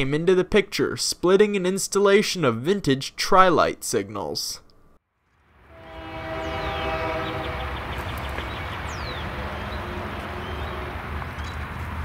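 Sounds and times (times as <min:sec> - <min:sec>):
locomotive air horn chord: 0:05.6 - 0:11.1
locomotive engine rumble: 0:05.7 - 0:12.0
bird chirps: 0:06.5 - 0:11.6.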